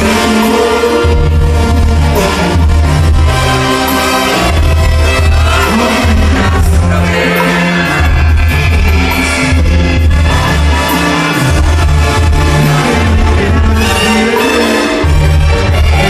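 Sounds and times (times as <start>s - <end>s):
brass and drums: 0.0s - 16.0s
tuba bass line: 0.0s - 16.0s
person singing: 4.3s - 16.0s.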